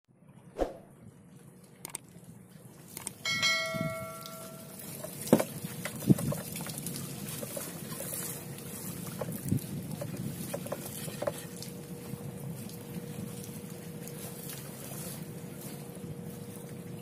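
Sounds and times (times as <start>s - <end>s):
seawater splashing and draining: 0.6s - 17.0s
bell-like metallic ring: 3.2s - 4.8s.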